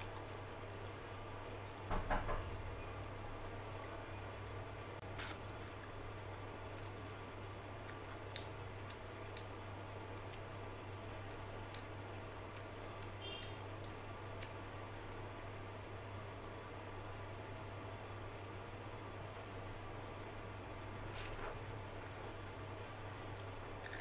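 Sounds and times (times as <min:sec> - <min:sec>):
steady low hum: 0:00.0 - 0:24.0
person chewing food: 0:03.7 - 0:14.6.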